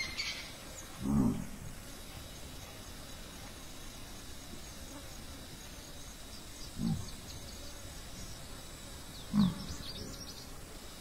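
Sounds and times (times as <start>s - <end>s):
mongoose grunting: 1.0s - 1.7s, 6.8s - 7.2s, 9.3s - 9.7s.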